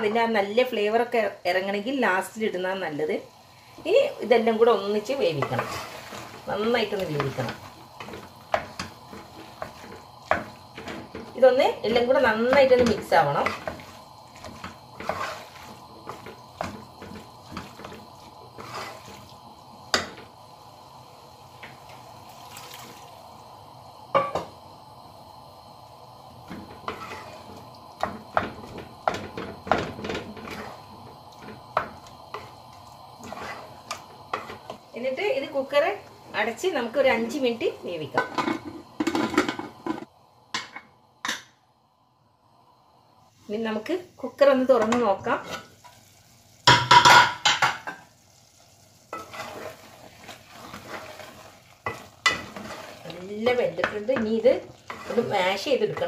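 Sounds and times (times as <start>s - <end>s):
spatula scraping in a pot: 5.0s - 20.1s, 26.5s - 34.8s, 45.3s - 46.0s, 49.1s - 56.0s
spatula knocking against pot: 46.7s - 48.0s
wet stirring of curry: 49.2s - 56.0s.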